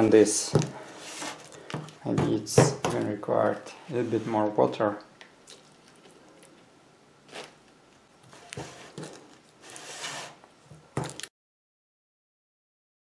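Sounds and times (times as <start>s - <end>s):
metal spatula scraping clay: 3.6s - 4.6s, 8.3s - 10.4s.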